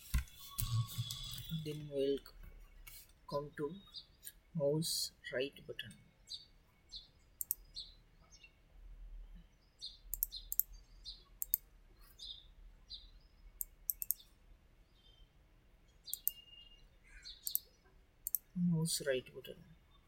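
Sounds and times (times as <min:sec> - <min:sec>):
bird chirps: 0:05.8 - 0:08.6, 0:09.2 - 0:19.2
computer mouse buttons clicking: 0:07.4 - 0:07.7, 0:10.1 - 0:10.8, 0:11.4 - 0:11.7, 0:13.6 - 0:14.3, 0:16.1 - 0:16.4, 0:17.4 - 0:18.5.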